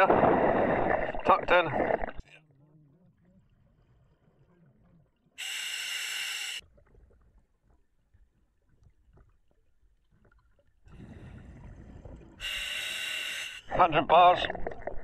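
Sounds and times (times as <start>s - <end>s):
exhaled bubbles rumbling: 0.0s - 2.3s, 10.1s - 12.4s, 13.8s - 15.0s
diver inhaling through regulator: 5.4s - 6.6s, 12.3s - 13.7s.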